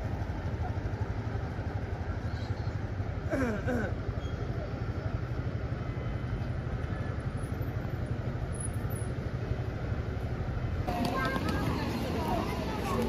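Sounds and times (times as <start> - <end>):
city traffic rumbling: 0.0 - 13.0.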